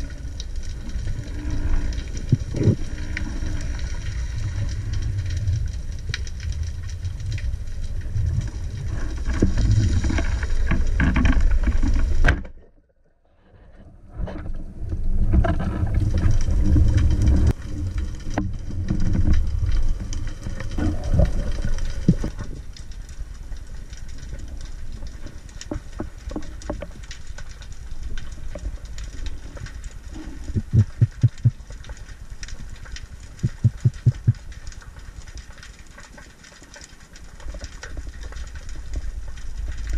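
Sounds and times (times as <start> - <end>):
underwater rumbling: 0.0 - 39.9
quick low thumps: 30.6 - 31.5, 33.4 - 34.4.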